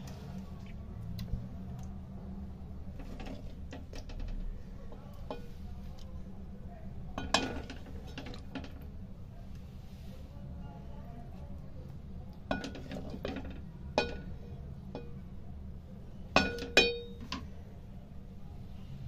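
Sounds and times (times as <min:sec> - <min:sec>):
low steady hum: 0:00.0 - 0:19.0
metal ladle clinking on steel pot: 0:07.2 - 0:08.7, 0:12.5 - 0:14.3, 0:16.4 - 0:17.4.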